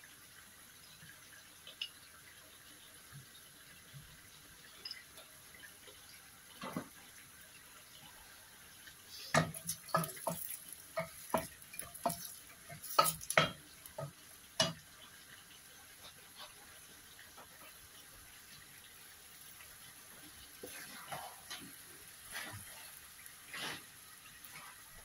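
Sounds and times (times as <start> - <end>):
wooden spoon stirring onions: 9.3 - 14.7, 20.6 - 22.9
spoon knocking against pot: 9.3 - 14.8.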